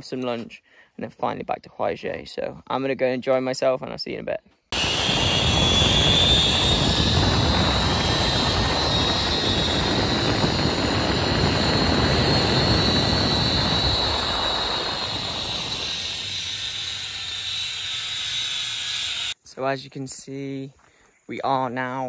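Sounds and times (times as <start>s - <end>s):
wind rushing on microphone: 4.8s - 17.5s
zip line trolley whine: 4.8s - 19.4s.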